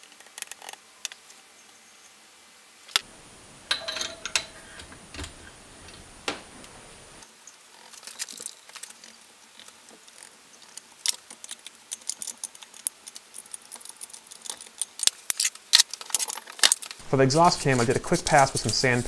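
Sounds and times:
metallic clicks of tools and parts: 3.7s - 6.0s.

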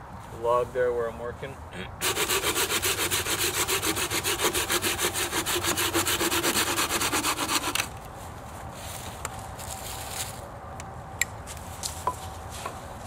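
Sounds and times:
hand saw cutting wood: 2.0s - 7.9s.

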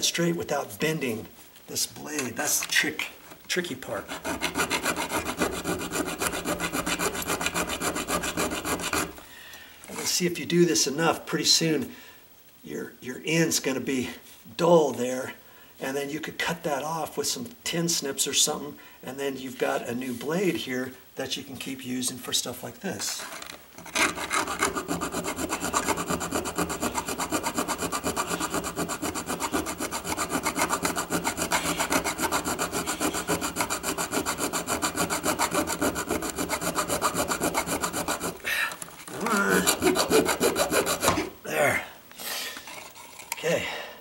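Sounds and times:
hacksaw sawing through metal: 3.9s - 9.2s, 23.8s - 38.4s, 39.1s - 41.3s
uneven scrapes: 23.0s - 41.4s.

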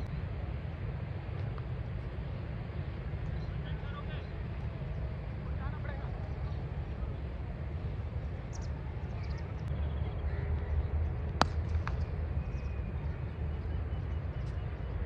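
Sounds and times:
steady low rumble: 0.0s - 15.0s
cricket bat striking ball: 11.4s - 12.0s.

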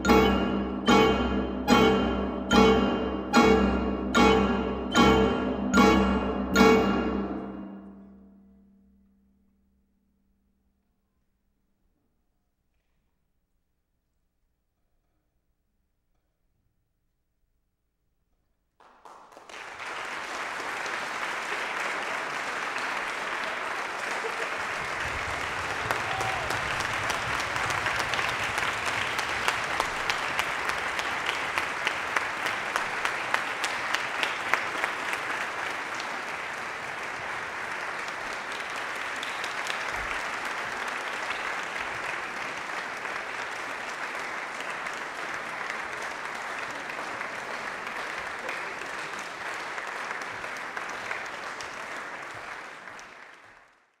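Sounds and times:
sharp individual claps: 18.8s - 53.7s
audience applauding: 18.8s - 54.0s.

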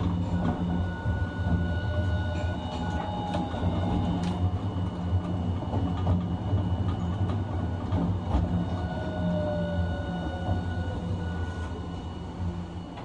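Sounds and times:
tram wheels rumbling on rail: 0.0s - 13.0s
faint high whine: 8.6s - 13.0s.

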